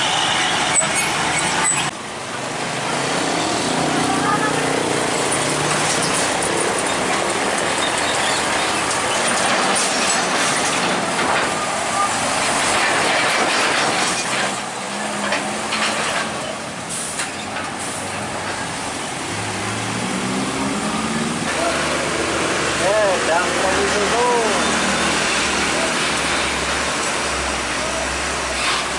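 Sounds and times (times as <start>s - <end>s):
truck engine and tyres rushing: 0.0s - 28.9s
wheels clattering over rails: 4.7s - 19.3s.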